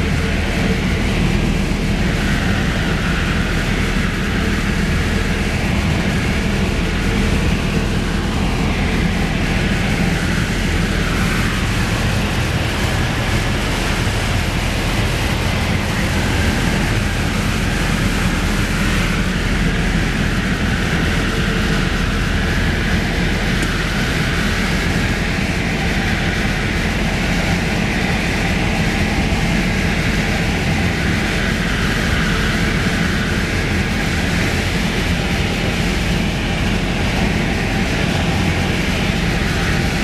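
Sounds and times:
light aircraft engine drone: 0.0s - 40.0s.

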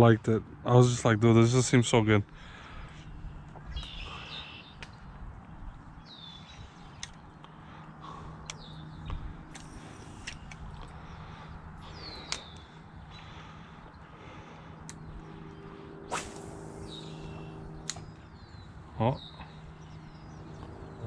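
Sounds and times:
bird calling: 2.4s - 5.1s, 6.0s - 21.0s
sharp clicks: 7.0s - 7.5s, 8.4s - 11.0s, 12.0s - 12.7s, 17.8s - 18.3s.

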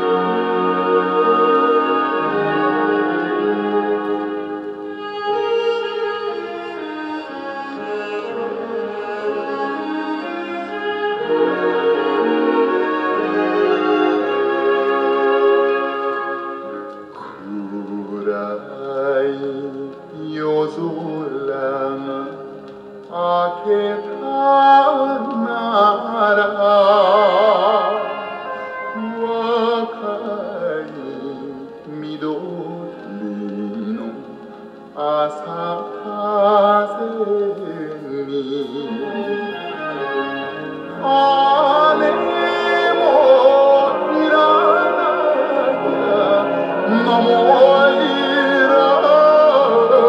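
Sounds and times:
instrumental accompaniment: 0.0s - 50.0s
operatic singer with vibrato: 0.0s - 50.0s
vinyl record music with vibrato: 32.4s - 50.0s.

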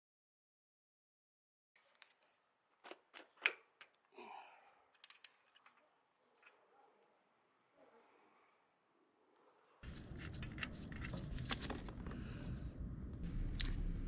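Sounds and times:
small parts clicking: 4.9s - 5.8s.

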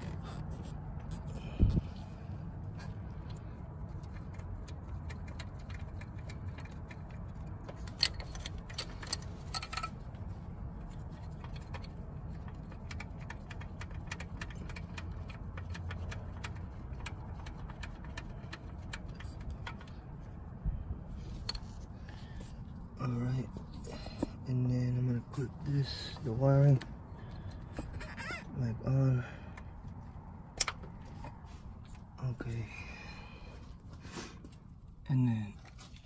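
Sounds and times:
light metallic clicks and rattles: 0.0s - 20.5s, 29.4s - 32.9s
steady low rumble: 0.0s - 36.0s.

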